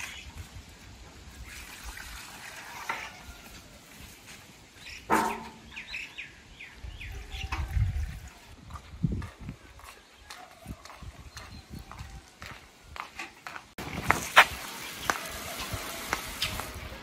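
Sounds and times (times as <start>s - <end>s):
metal pail clanking: 5.0s - 6.0s.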